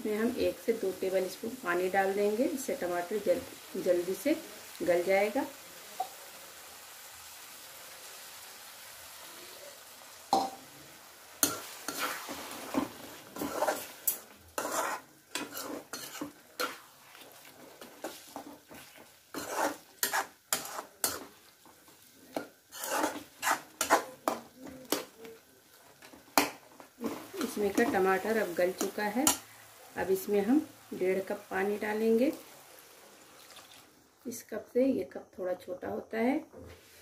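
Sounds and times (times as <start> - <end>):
light sizzle: 0.0 - 37.0
metal spatula clanking and scraping: 11.4 - 21.4, 22.3 - 25.1.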